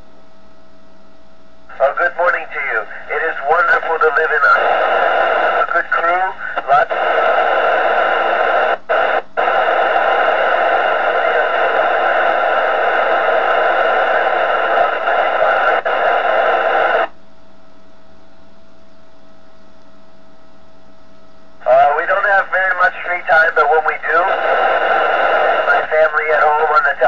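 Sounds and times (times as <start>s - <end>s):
radio static hiss: 1.7s - 17.2s, 21.6s - 27.0s.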